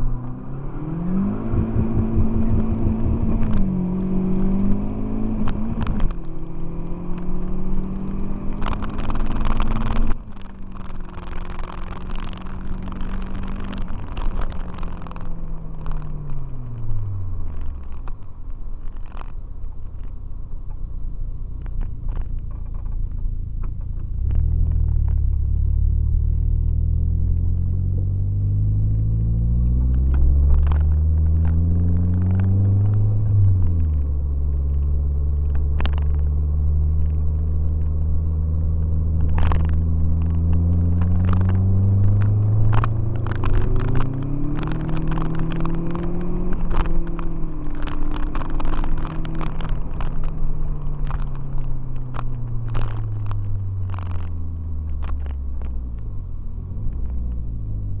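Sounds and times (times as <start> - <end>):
car engine accelerating: 0.0 - 58.0.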